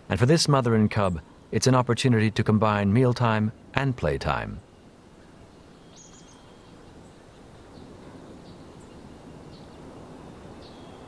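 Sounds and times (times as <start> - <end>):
low steady hiss: 0.0 - 11.0
bird chirps: 4.6 - 11.0.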